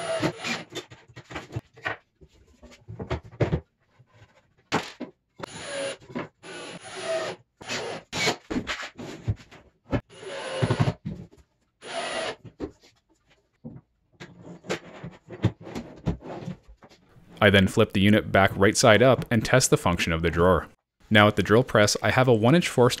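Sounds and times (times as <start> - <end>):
cordless drill driving screws: 0.0 - 0.7, 10.1 - 11.0, 11.8 - 12.4.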